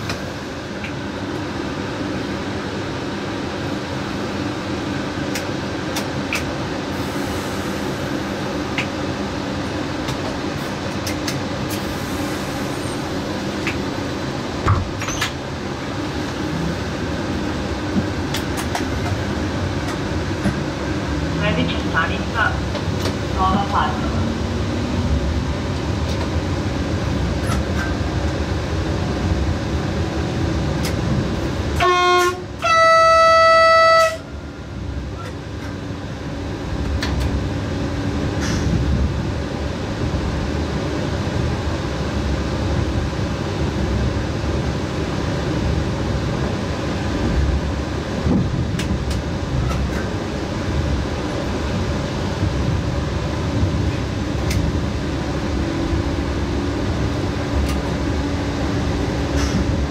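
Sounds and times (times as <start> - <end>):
train wheels rumbling on rails: 0.0 - 59.9
train horn: 31.8 - 34.4.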